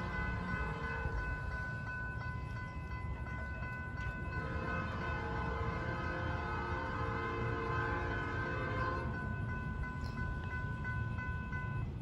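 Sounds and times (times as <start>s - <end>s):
locomotive horn chord: 0.0s - 1.4s, 4.3s - 9.5s.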